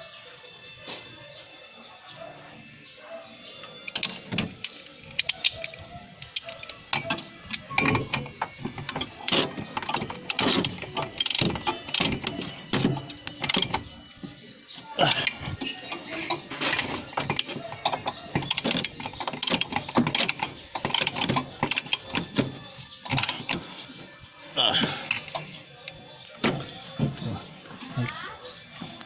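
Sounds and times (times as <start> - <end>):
wrench clicking against metal: 3.8 - 12.4, 17.3 - 22.4.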